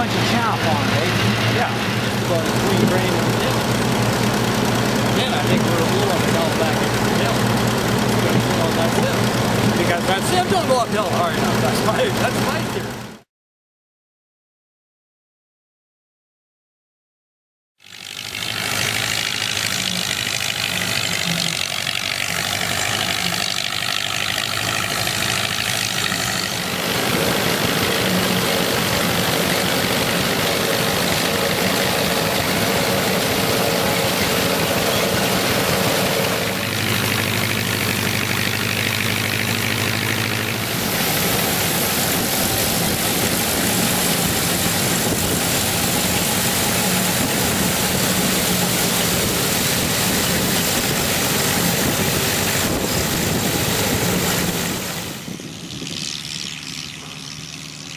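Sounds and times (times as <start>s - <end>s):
tractor engine running: 0.0s - 13.2s, 17.8s - 57.9s
combine engine running: 0.0s - 13.3s, 17.8s - 57.9s
steady hum: 39.2s - 57.9s.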